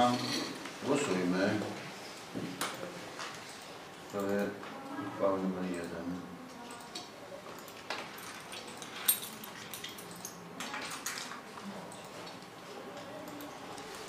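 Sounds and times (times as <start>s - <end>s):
small clicks and clinks: 6.6s - 12.5s.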